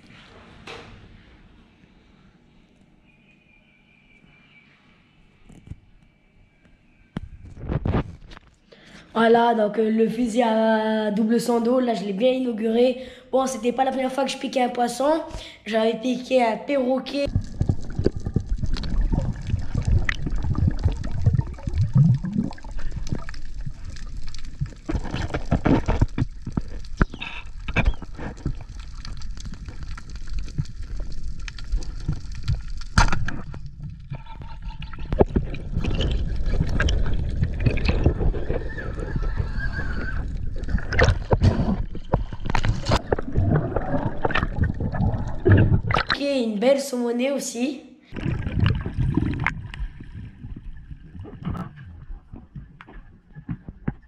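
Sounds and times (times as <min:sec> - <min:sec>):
underwater clicks and knocks: 0:17.3 - 0:39.2, 0:40.0 - 0:46.2, 0:48.2 - 0:54.0
underwater rush and gurgle: 0:17.3 - 0:46.2, 0:48.2 - 0:54.0.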